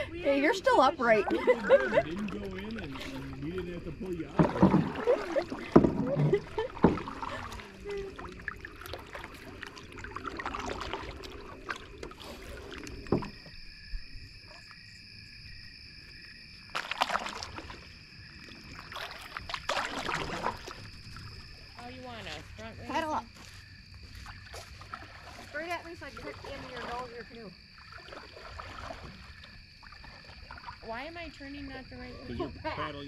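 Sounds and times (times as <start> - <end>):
paddle strokes and splashes: 0.0 - 15.2, 16.5 - 31.7
paddle knocks against hull: 4.0 - 7.8, 10.3 - 13.6.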